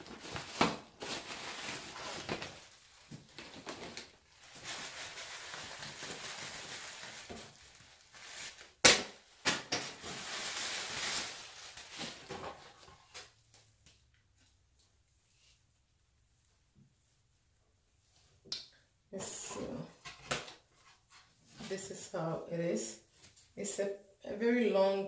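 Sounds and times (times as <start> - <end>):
plastic packaging rustling: 0.0 - 13.5.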